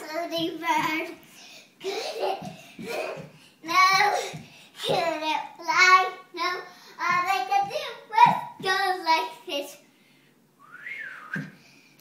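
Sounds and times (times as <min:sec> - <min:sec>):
child singing: 0:03.6 - 0:09.8.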